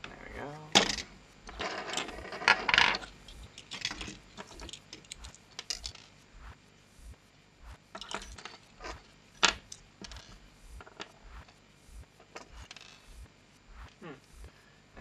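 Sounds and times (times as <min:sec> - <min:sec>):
small plastic parts clicking: 0:00.0 - 0:06.2.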